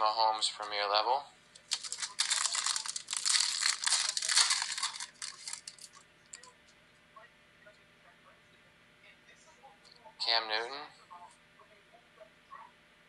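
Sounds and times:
foil wrapper tearing and crinkling: 0:01.6 - 0:06.0.

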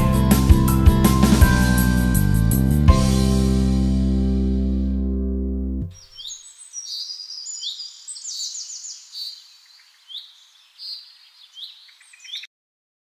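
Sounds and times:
light background hiss: 0:05.9 - 0:12.3
small birds chirping: 0:05.9 - 0:12.5.

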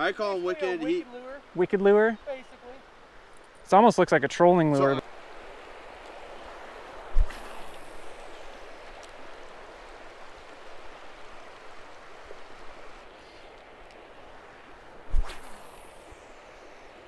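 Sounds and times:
river water over gravel: 0:00.0 - 0:17.0
fishing rod cast swish: 0:07.1 - 0:08.2, 0:15.1 - 0:16.4.

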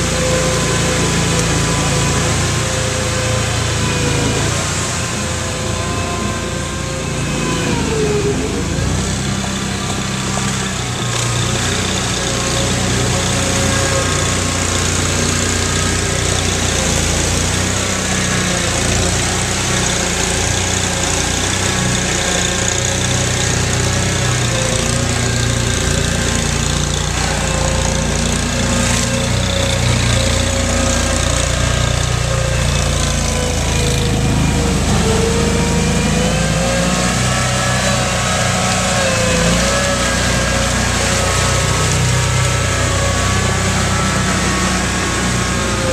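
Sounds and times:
other vehicle engines: 0:00.0 - 0:45.9
tracked vehicle engine in mud: 0:00.0 - 0:45.9.

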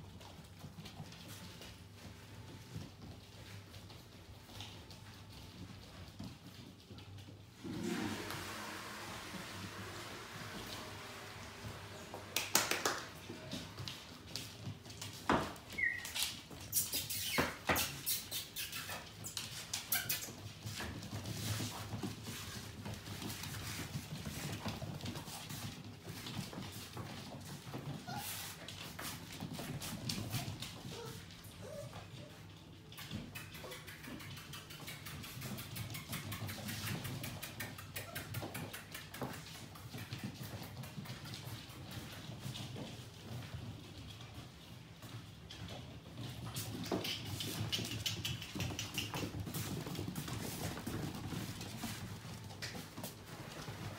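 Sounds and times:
dog claws clicking on tiled floor: 0:12.1 - 0:53.9
puppy squeaks: 0:15.7 - 0:20.5
dog claws clicking on tiles: 0:32.9 - 0:41.3, 0:46.5 - 0:52.0.

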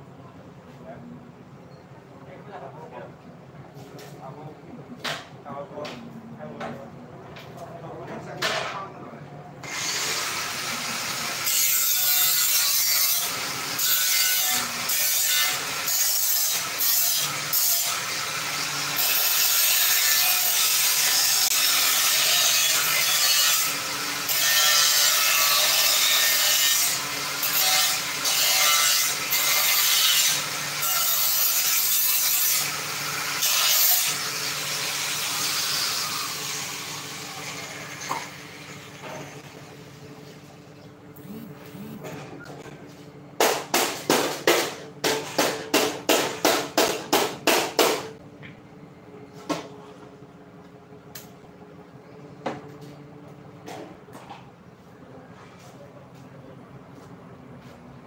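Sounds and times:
angle grinder cutting sheet metal: 0:09.6 - 0:38.0, 0:41.2 - 0:42.4.

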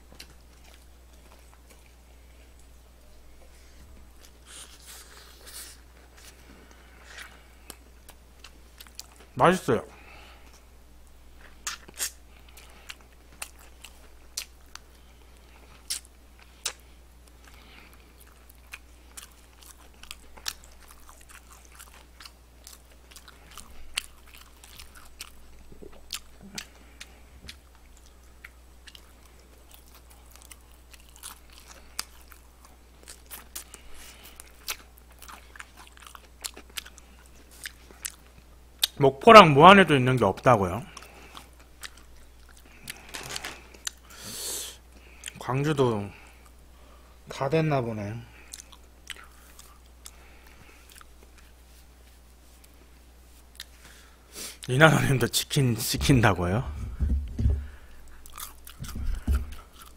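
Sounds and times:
steady low hum: 0:00.0 - 0:59.9
crunching fried chicken: 0:11.4 - 0:39.0, 0:57.6 - 0:59.9
wet chewing: 0:11.4 - 0:39.0, 0:40.9 - 0:44.1, 0:48.4 - 0:51.6, 0:53.4 - 0:53.8, 0:57.0 - 0:59.9.

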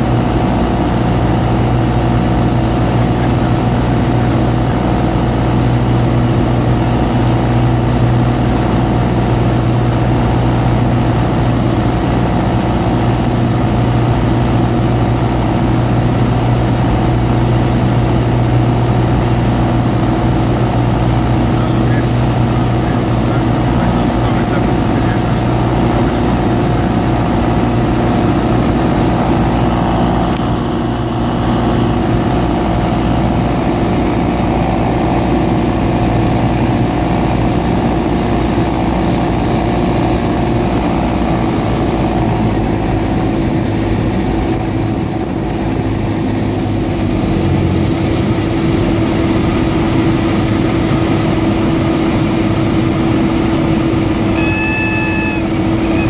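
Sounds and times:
aircraft engine and propeller drone: 0:00.0 - 0:56.0
airflow noise: 0:54.0 - 0:56.0
high steady warning tone: 0:54.3 - 0:56.0.

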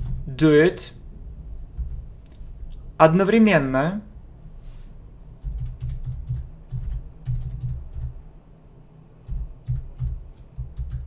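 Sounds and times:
computer keyboard typing: 0:00.0 - 0:00.3, 0:05.4 - 0:08.2, 0:09.2 - 0:11.0.

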